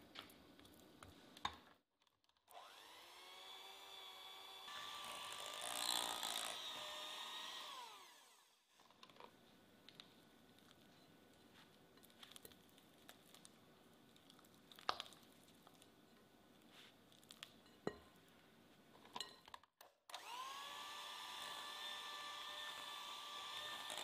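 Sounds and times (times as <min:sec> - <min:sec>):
electric hand mixer running: 0:02.5 - 0:08.5, 0:20.1 - 0:24.0.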